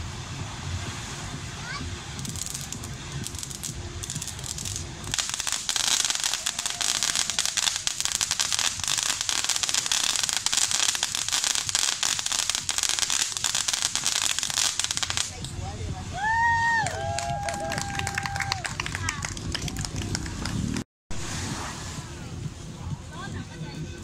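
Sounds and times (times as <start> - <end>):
firework fountain crackling: 0.0 - 24.0.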